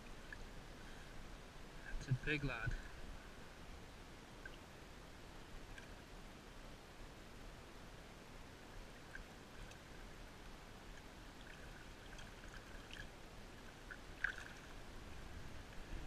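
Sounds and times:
small drip-like ticks: 0:00.0 - 0:01.0, 0:04.4 - 0:04.7, 0:05.6 - 0:06.0, 0:08.7 - 0:14.8
river water lapping: 0:08.8 - 0:16.0.

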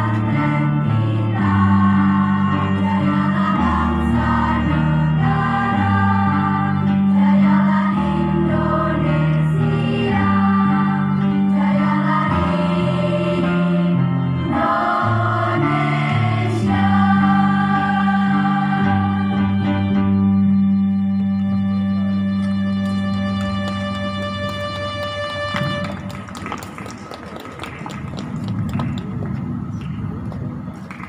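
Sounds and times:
female choir singing: 0:00.0 - 0:19.6
instrumental bass line: 0:00.0 - 0:26.1.

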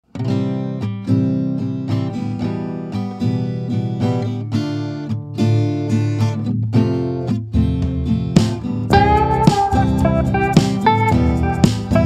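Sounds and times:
acoustic guitar playing: 0:00.0 - 0:12.0.

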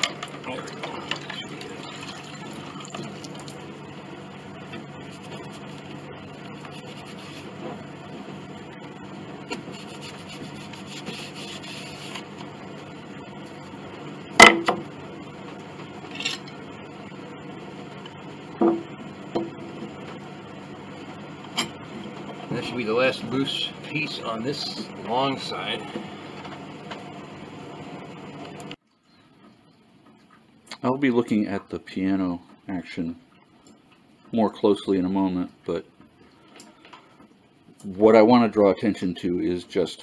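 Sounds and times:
rag rubbing wet wood: 0:04.7 - 0:07.9, 0:09.5 - 0:12.5.

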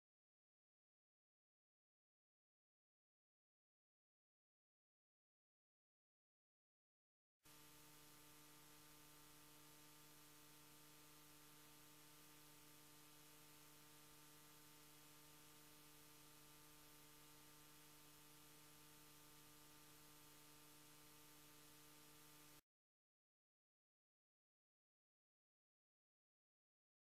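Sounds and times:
faint steady hiss: 0:07.5 - 0:22.6
low electrical hum: 0:07.5 - 0:22.6.

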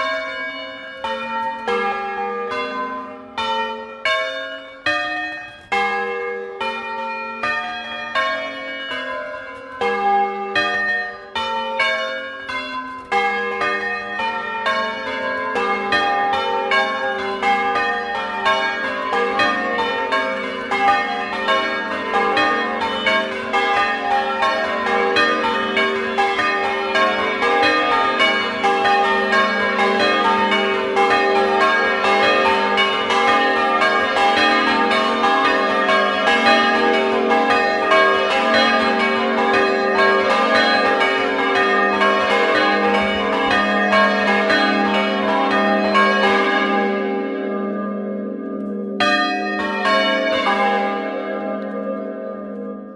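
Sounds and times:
church bells pealing: 0:00.0 - 0:52.9.

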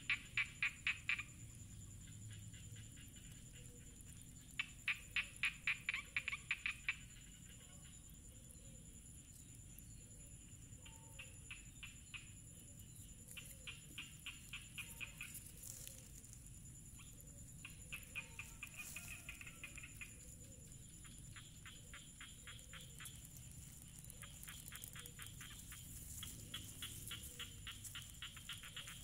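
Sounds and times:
animal clicking trills: 0:13.0 - 0:29.0.

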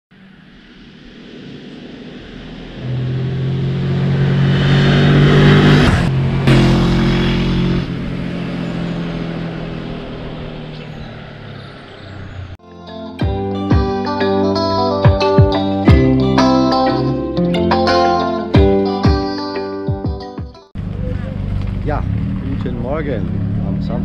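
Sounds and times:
vehicle engine running: 0:00.2 - 0:12.6, 0:20.8 - 0:24.0.

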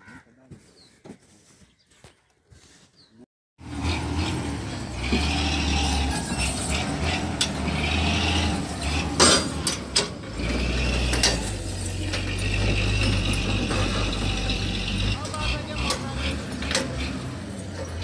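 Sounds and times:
truck engine running: 0:03.6 - 0:18.0
metallic clanks and rattles: 0:04.6 - 0:18.0.

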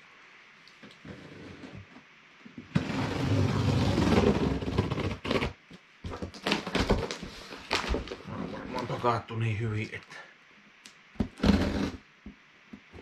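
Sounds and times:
quick scrapes and knocks: 0:11.2 - 0:12.0.

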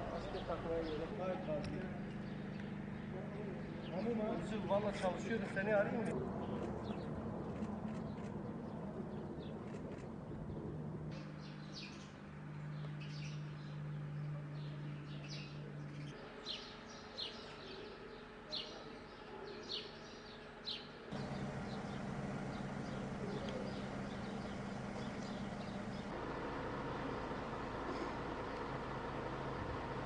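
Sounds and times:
small birds chirping: 0:00.0 - 0:05.3, 0:06.4 - 0:30.0
low steady ambient hum: 0:21.1 - 0:30.0.

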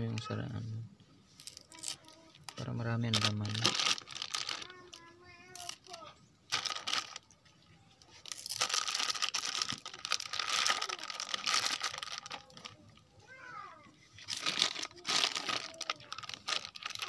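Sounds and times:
plastic bag crinkling: 0:01.7 - 0:07.4, 0:08.2 - 0:13.0, 0:14.2 - 0:17.0.

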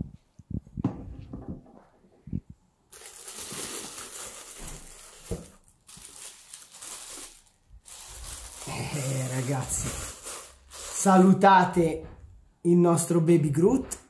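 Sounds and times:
bubble wrap crinkling: 0:02.9 - 0:11.7.

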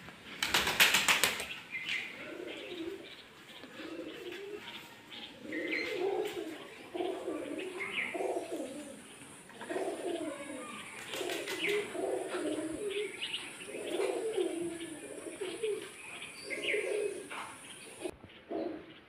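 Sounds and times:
parakeet wings flapping: 0:00.4 - 0:01.6, 0:11.0 - 0:11.8.

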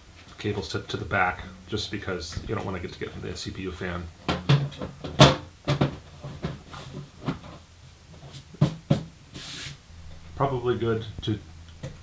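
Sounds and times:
brief hiss: 0:09.3 - 0:09.8.

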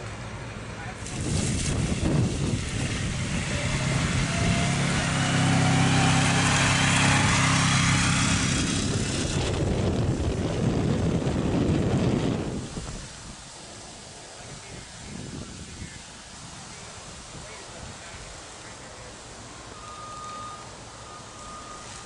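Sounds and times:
atv engine driving past: 0:01.0 - 0:12.5.

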